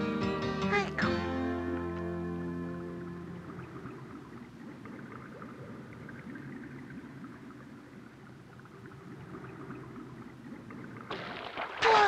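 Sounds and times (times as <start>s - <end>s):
low underwater rumble: 2.8s - 11.8s
water bubbling and gurgling: 3.2s - 12.0s.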